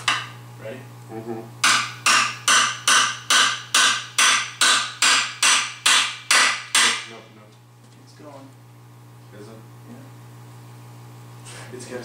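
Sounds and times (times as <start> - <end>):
hammer striking metal: 0.0 - 0.4, 1.6 - 7.2.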